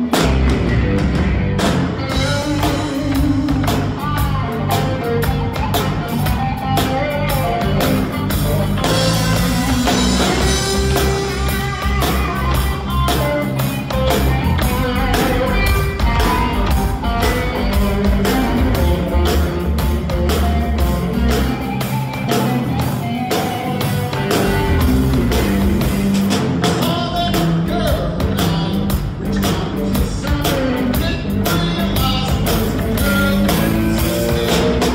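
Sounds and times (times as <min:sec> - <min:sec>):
bass guitar: 0:00.0 - 0:34.9
drum kit beat: 0:00.0 - 0:34.9
electric guitar: 0:00.0 - 0:34.9.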